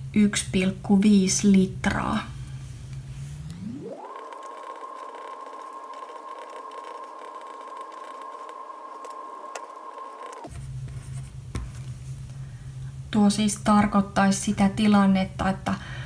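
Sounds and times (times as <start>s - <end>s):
pencil scratching on paper: 5.2s - 10.4s.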